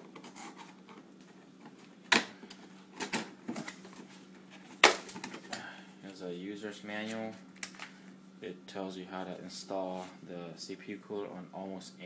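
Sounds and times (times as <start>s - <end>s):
cardboard snapping: 4.8s - 5.4s.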